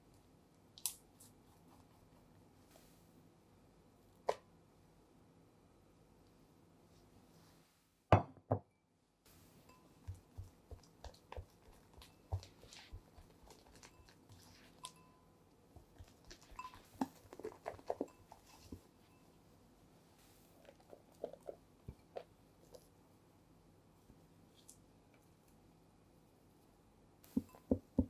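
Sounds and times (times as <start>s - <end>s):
spatula mixing batter: 9.8s - 15.1s, 15.7s - 19.0s.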